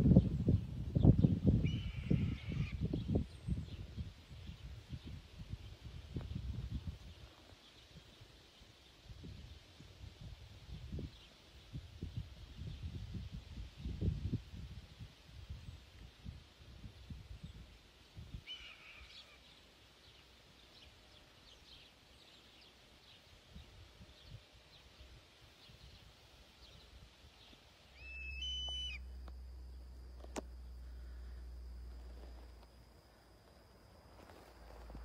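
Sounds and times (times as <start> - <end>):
birds chirping: 25.6 - 31.9
low hum: 26.4 - 35.0
low rumbling noise: 27.8 - 35.0.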